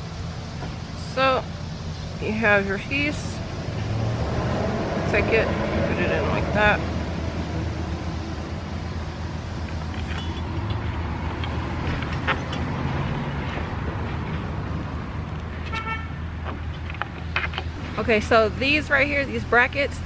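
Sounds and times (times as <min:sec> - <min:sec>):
road traffic rumble: 0:00.0 - 0:20.0.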